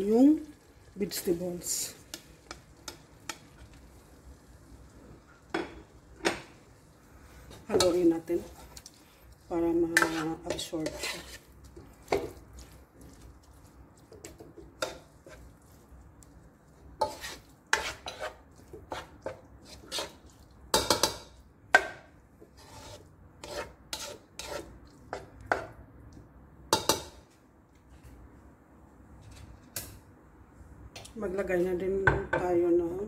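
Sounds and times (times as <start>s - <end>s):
spatula scraping wok: 1.2s - 4.0s, 5.1s - 25.8s.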